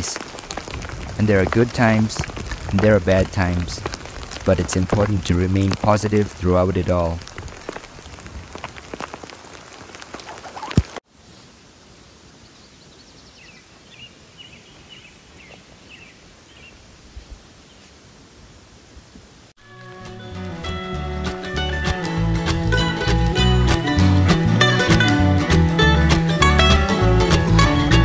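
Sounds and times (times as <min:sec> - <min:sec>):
dense crackling ticks: 0:00.0 - 0:11.0
outdoor background noise: 0:00.0 - 0:19.6.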